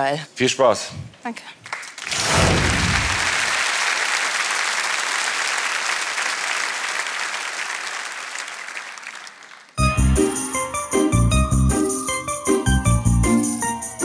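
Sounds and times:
studio audience applauding: 0:01.6 - 0:10.7
music with beat and bell tones: 0:09.8 - 0:14.0.

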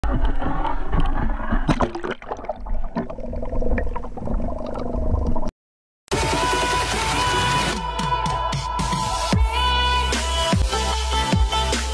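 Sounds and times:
water splashing and gurgling: 0:00.0 - 0:05.5.

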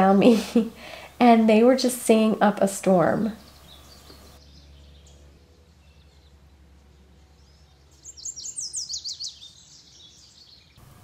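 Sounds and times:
bird singing whistled notes: 0:07.4 - 0:10.8.

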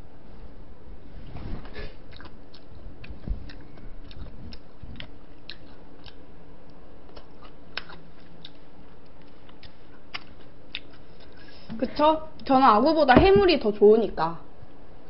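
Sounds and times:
person chewing wetly: 0:02.0 - 0:11.5.

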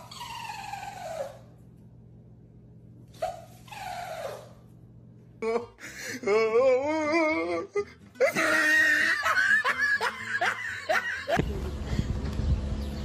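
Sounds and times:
people laughing: 0:08.2 - 0:11.8
steady low rumble: 0:11.2 - 0:13.0.

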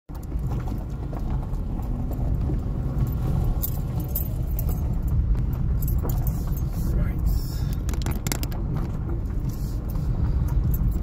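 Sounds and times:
tyres and engine rumble: 0:00.1 - 0:11.0
small clicks and rattles: 0:07.7 - 0:11.0.

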